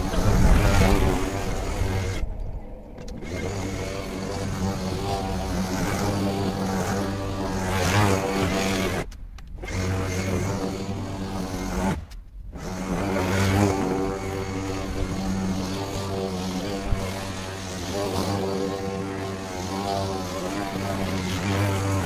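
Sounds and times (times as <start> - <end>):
electric lawnmower humming: 0.0 - 22.0
click: 9.1 - 9.6.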